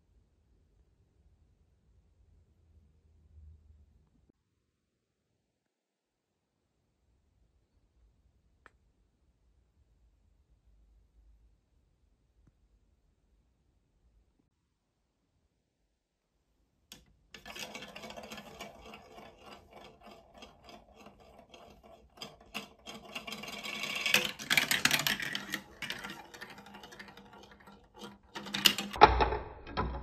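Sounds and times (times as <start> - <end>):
plastic ball rattling through marble run: 16.9 - 30.0.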